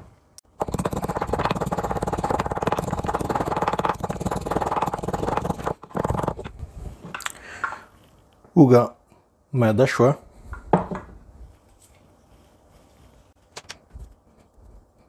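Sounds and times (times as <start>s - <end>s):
pestle crushing in mortar: 0.5s - 6.6s.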